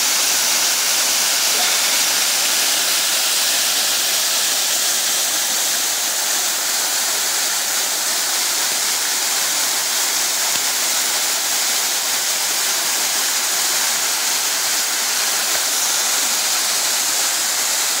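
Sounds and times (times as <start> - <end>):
small waterfall rushing: 0.0 - 18.0.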